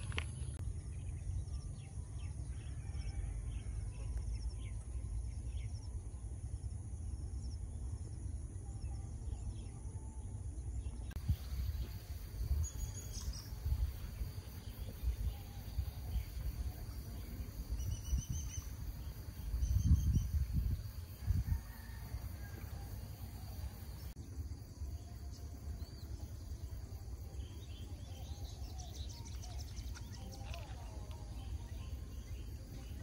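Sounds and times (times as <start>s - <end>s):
insects trilling: 11.2s - 33.0s.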